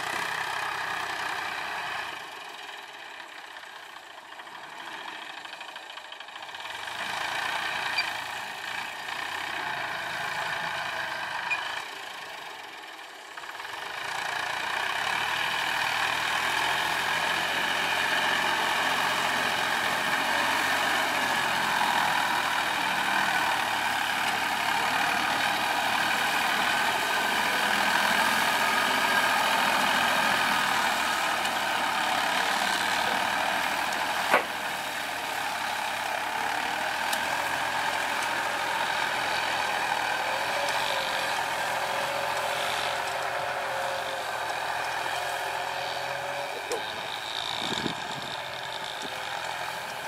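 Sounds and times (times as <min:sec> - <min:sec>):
tractor diesel engine running: 0:00.0 - 0:50.0.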